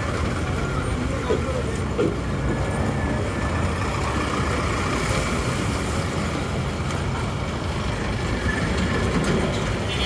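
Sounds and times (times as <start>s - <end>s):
busy road traffic: 0.0s - 10.0s.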